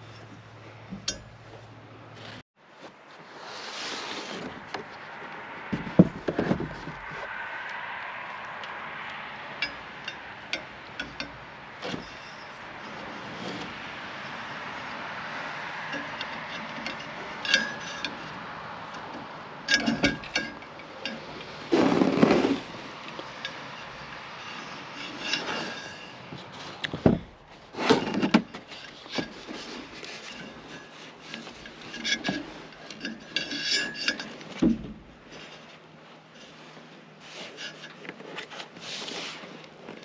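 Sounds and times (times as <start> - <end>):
tools knocking and clicking: 18.9 - 21.3.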